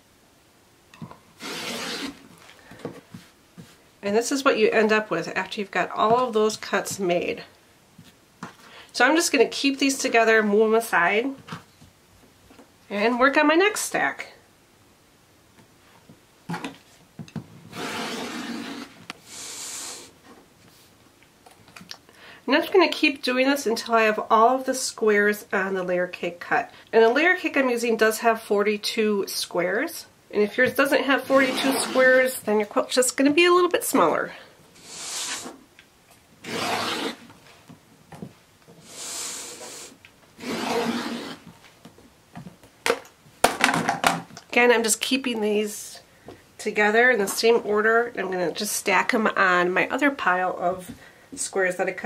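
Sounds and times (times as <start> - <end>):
rasping scrape: 1.4 - 2.2, 17.7 - 20.0, 31.2 - 32.3, 36.4 - 37.3, 38.9 - 41.5
rotary cutter slicing fabric: 1.4 - 2.2, 17.7 - 19.0, 36.4 - 37.3, 40.4 - 41.4
high hissing slide: 17.7 - 20.2, 34.8 - 35.6, 38.8 - 41.4.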